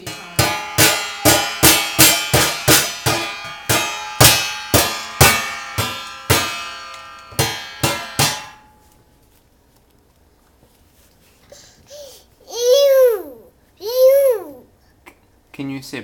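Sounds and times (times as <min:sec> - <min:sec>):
cup banging on metal lid: 0:00.0 - 0:08.7.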